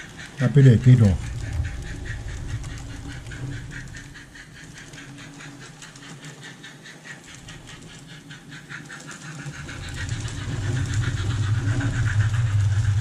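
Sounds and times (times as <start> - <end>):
low hum: 0.0 - 5.8, 9.3 - 13.0
model train wheels clicking: 0.0 - 13.0.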